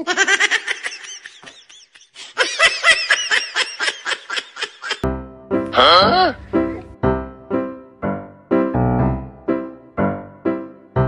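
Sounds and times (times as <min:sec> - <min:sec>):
person laughing: 0:00.0 - 0:05.0, 0:05.8 - 0:06.9.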